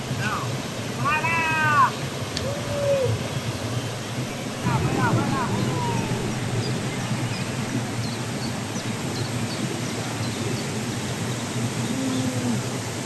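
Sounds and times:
waterfall rushing: 0.0s - 11.9s.

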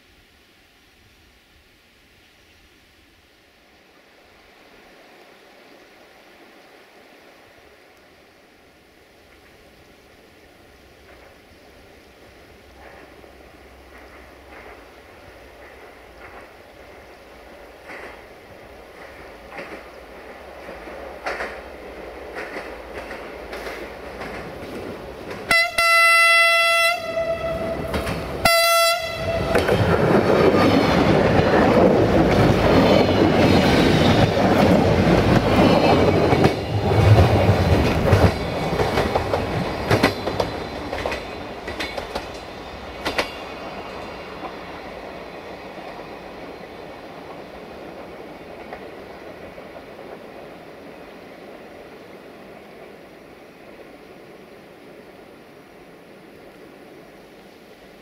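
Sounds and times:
train running noise: 9.0s - 58.0s
wheels clacking over rail joints: 12.7s - 25.8s, 27.8s - 50.2s
train horn blasts: 25.5s - 29.9s.

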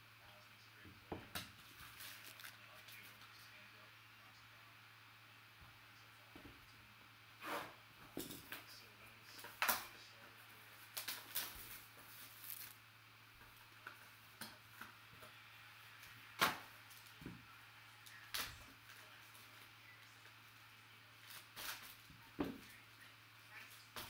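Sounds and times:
plastic shrink wrap tearing: 1.6s - 3.0s, 10.9s - 12.8s, 21.2s - 22.0s
plastic wrapped pack crinkling: 1.7s - 3.0s, 10.9s - 12.8s.

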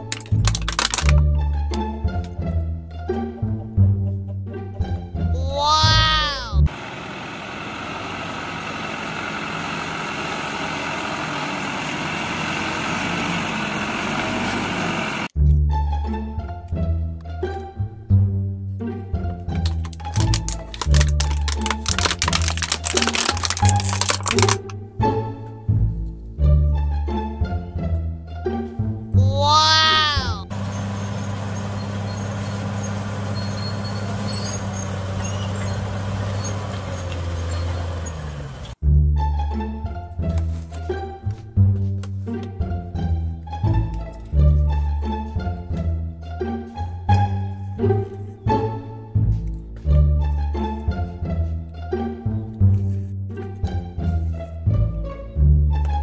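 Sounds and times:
diesel truck engine running: 6.6s - 15.3s, 30.5s - 38.8s.

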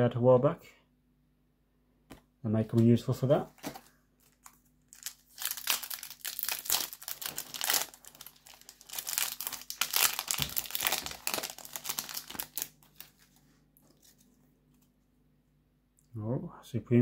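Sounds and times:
foil wrapper crinkling and tearing: 3.7s - 14.3s.

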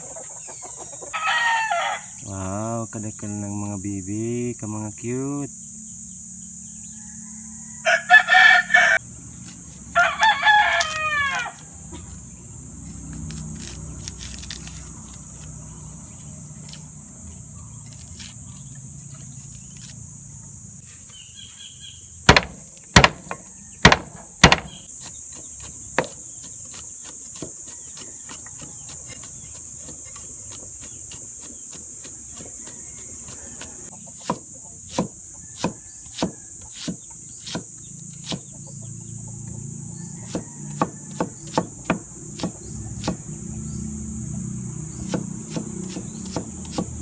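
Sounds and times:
insects droning: 0.0s - 47.0s
rooster crowing: 1.1s - 2.3s, 6.7s - 9.1s, 9.9s - 12.0s, 23.2s - 24.1s, 27.6s - 29.2s, 32.2s - 34.0s, 35.1s - 36.6s, 39.6s - 41.9s
cleaver striking chopping board: 22.3s - 24.9s, 26.0s - 26.2s, 33.3s - 38.5s, 40.3s - 43.2s, 45.1s - 47.0s
light chopping of garlic: 22.3s - 38.5s, 40.2s - 43.4s, 44.9s - 47.0s.

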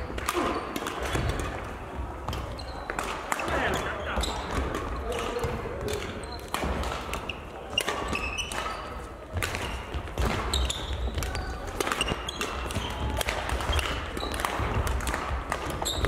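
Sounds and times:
sneakers squeaking on floor: 2.2s - 14.8s, 15.6s - 16.0s
racket striking shuttlecock: 4.5s - 16.0s.

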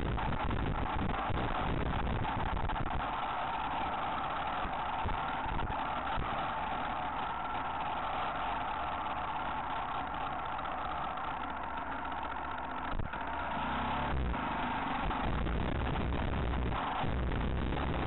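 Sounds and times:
motorcycle engine running: 0.0s - 18.0s
low rumble: 14.0s - 18.0s.

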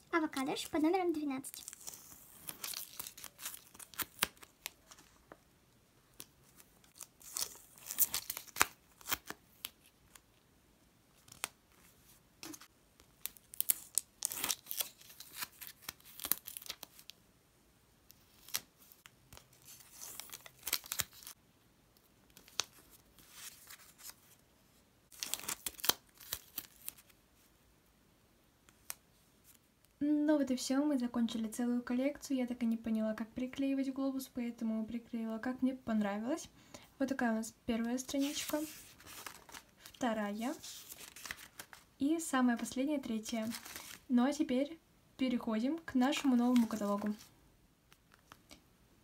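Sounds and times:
stickers peeling and crinkling: 0.2s - 5.2s, 6.1s - 10.3s, 12.4s - 17.1s, 18.2s - 21.4s, 25.1s - 27.1s, 38.1s - 41.9s, 46.1s - 47.3s.

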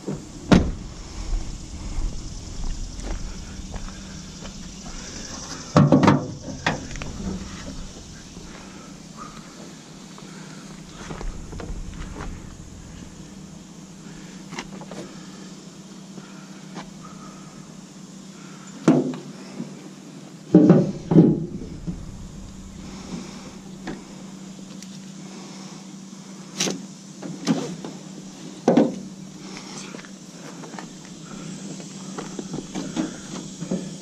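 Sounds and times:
sharp knocks and clunks: 0.0s - 1.2s, 2.7s - 9.5s, 20.6s - 24.3s
steady low hum: 0.0s - 18.7s, 20.6s - 26.5s, 29.1s - 34.0s.

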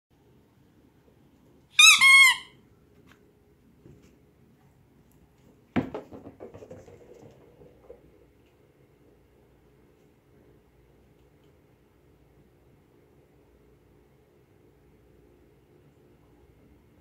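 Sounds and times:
dog toy squeaking: 1.8s - 2.6s
knock: 5.8s - 7.6s.

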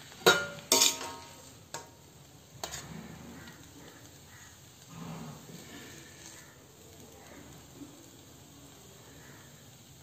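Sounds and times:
metal spatula clinking on pan: 0.2s - 2.0s.

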